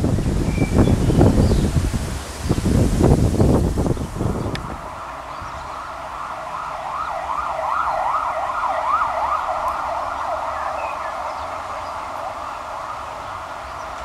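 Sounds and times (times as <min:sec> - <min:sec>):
siren wailing: 0:04.2 - 0:14.0.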